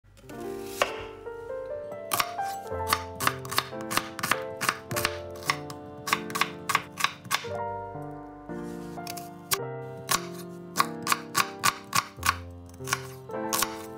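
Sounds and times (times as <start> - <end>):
background music: 0.1 - 13.9
knife chopping on cutting board: 0.8 - 1.1, 2.1 - 7.5, 10.1 - 13.9.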